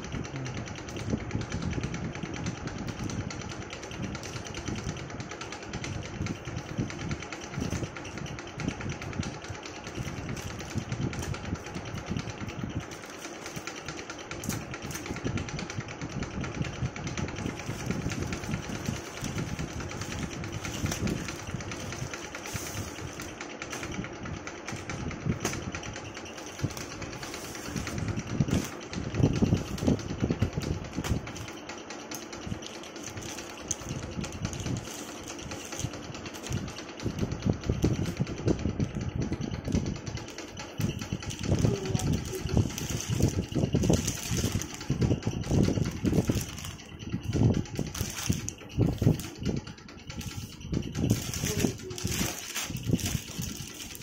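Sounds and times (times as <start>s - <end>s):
scissors cutting plastic: 2.9s - 4.9s, 12.1s - 15.2s, 17.4s - 23.9s, 26.3s - 28.9s, 31.0s - 37.2s, 40.3s - 49.5s, 50.1s - 54.0s
plastic mailer crinkling: 9.3s - 15.4s, 17.4s - 24.0s, 24.6s - 37.2s, 40.2s - 54.0s.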